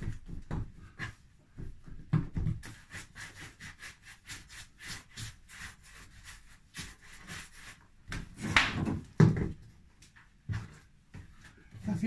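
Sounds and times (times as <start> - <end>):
hands rubbing bread dough: 2.6 - 8.0.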